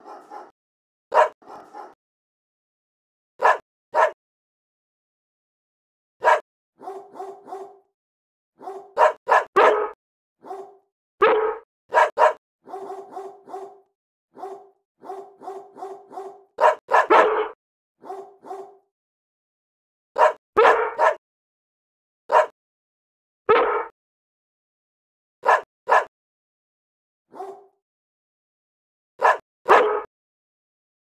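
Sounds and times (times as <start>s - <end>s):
dog yapping and barking: 0.0s - 0.5s, 1.1s - 2.0s, 3.4s - 4.2s, 6.2s - 7.9s, 8.6s - 13.8s, 14.4s - 18.8s, 20.2s - 21.2s, 22.3s - 22.5s, 25.4s - 26.1s, 27.3s - 27.7s, 29.2s - 30.1s.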